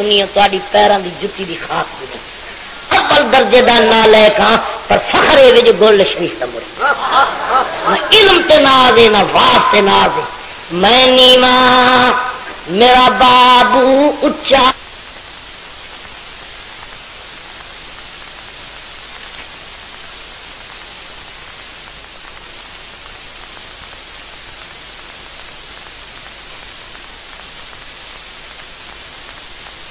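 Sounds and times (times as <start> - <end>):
static hiss: 0.0 - 29.9
faint click: 19.3 - 19.5.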